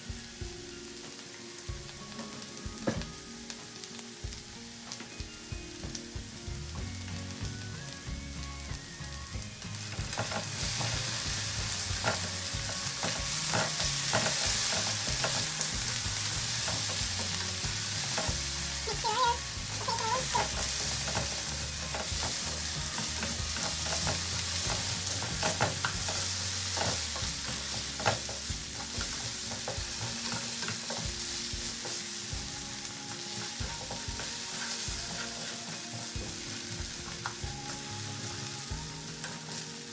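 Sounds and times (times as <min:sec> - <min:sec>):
potatoes sizzling in oil: 0:00.0 - 0:39.9
wooden spatula scraping pan: 0:10.1 - 0:32.0, 0:33.2 - 0:38.5.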